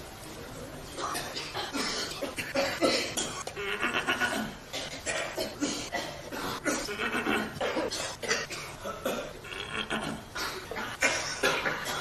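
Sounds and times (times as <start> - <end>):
rapid coughing: 1.0 - 12.0.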